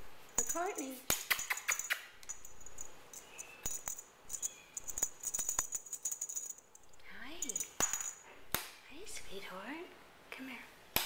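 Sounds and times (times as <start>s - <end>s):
small bell jingling: 0.3s - 8.4s.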